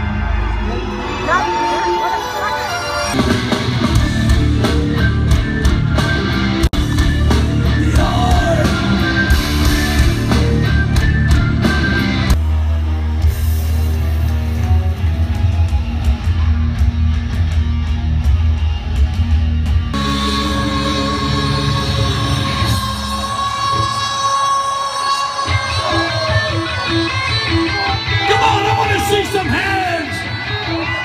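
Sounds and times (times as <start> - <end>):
distorted guitars: 0.0 - 31.0
drums: 2.8 - 31.0
person singing: 7.6 - 10.1.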